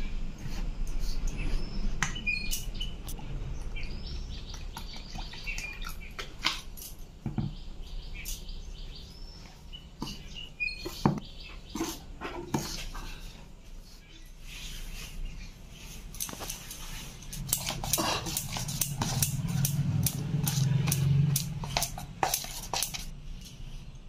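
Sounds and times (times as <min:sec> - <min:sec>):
birds chirping: 0:00.0 - 0:24.0
ladle scraping metal bowl: 0:15.9 - 0:23.2.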